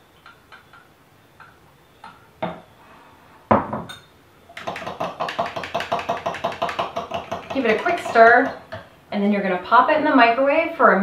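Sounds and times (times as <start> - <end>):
glass cup knocking on counter: 3.5 - 8.8
spoon clinking in ceramic mug: 3.8 - 4.2.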